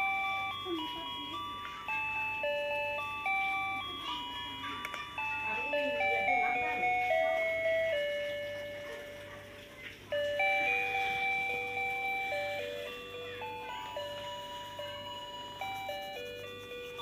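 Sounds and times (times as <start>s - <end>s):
simple electronic bell-like tune: 0.0s - 17.0s.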